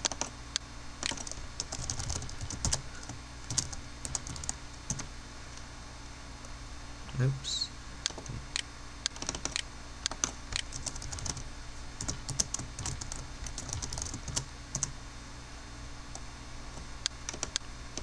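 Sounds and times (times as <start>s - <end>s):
keyboard typing: 0.0s - 0.3s, 1.0s - 5.1s, 9.1s - 11.4s, 12.0s - 14.9s, 17.3s - 17.6s
low steady hum: 0.0s - 18.0s.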